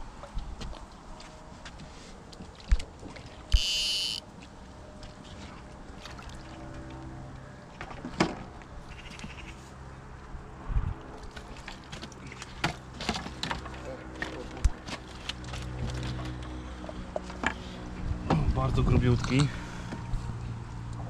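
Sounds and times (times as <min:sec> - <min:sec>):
high electronic buzzing tone: 0:03.5 - 0:04.2.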